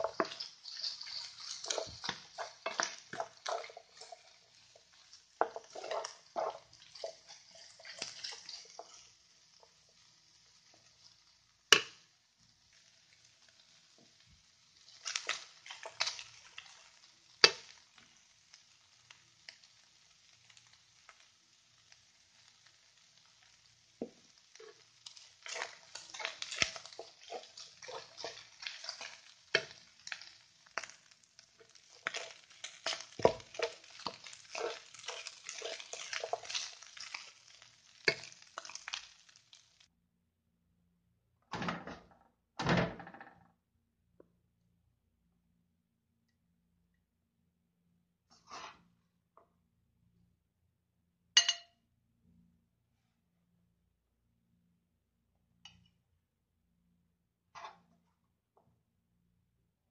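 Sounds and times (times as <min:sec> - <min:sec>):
spatula scraping rice in pan: 0:00.0 - 0:09.2, 0:15.0 - 0:16.8, 0:24.5 - 0:31.0, 0:31.6 - 0:39.3, 0:48.3 - 0:48.8.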